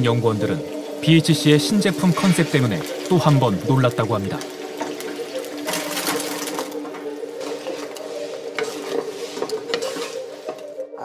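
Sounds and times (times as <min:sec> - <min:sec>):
chicken sizzling in frying oil: 0:00.0 - 0:10.8
utensil stirring with clicks: 0:04.3 - 0:10.8.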